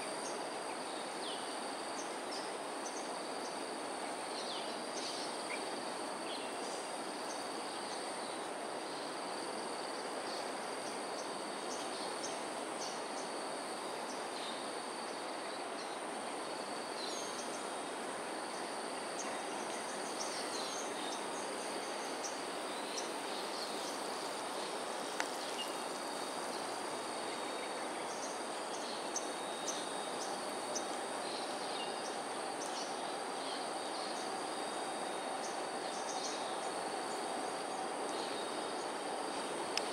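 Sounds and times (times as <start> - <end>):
background hiss: 0.0 - 39.9
faint clicks: 25.1 - 25.4.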